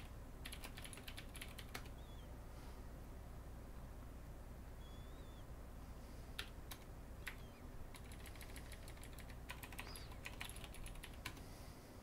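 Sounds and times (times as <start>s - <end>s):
computer keyboard typing: 0.0s - 2.0s, 6.4s - 11.4s.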